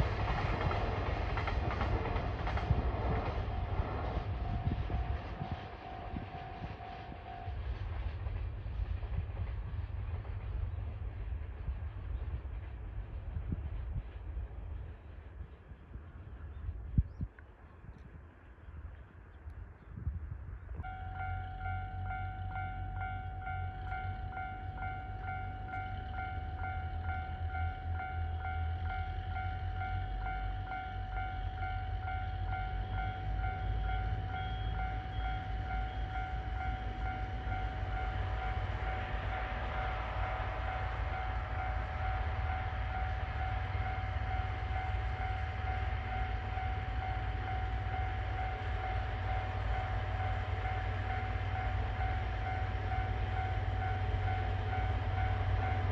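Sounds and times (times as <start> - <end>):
continuous high ringing tone: 0.0 - 8.6, 19.9 - 55.9
steady low rumble: 0.0 - 55.9
train approaching: 0.0 - 55.9.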